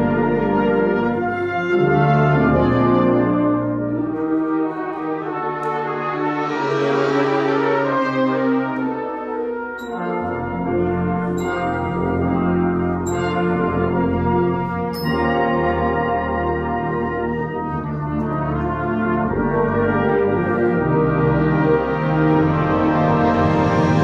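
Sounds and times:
brass band chords: 0.0s - 24.0s.

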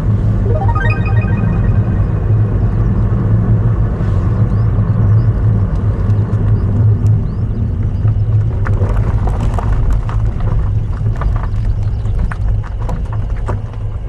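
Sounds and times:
car engine and tyres rumbling: 4.5s - 14.0s
gravel clicking under tyres: 5.4s - 14.0s.

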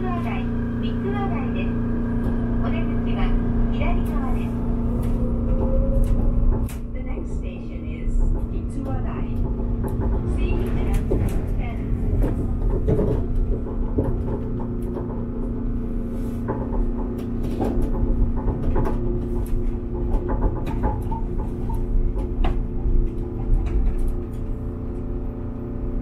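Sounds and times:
monorail car low rumble: 0.0s - 26.0s
clicks and knocks: 16.4s - 24.6s.

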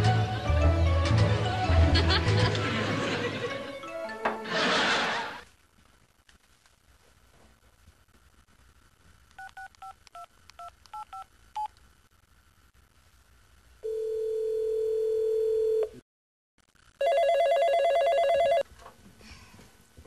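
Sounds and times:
desk phone warbling ring: 17.0s - 18.6s.

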